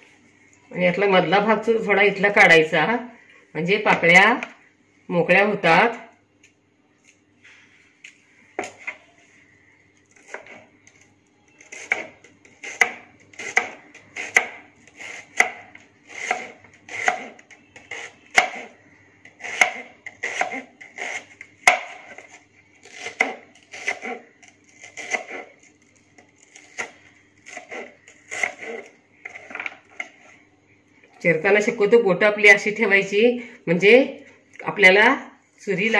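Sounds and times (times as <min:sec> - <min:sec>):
knife slicing onion: 0:10.1 - 0:11.0, 0:11.6 - 0:30.4.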